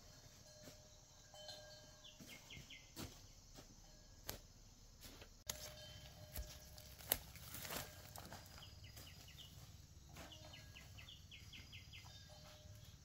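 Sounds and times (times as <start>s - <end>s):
rustle in undergrowth: 5.0s - 11.1s.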